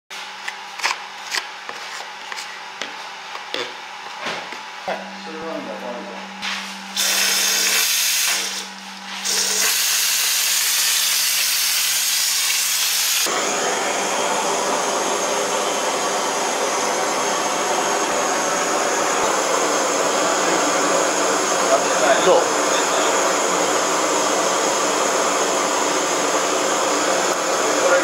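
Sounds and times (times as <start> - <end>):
spray gun hissing: 7.0 - 13.3
torch flame hissing: 7.0 - 28.0.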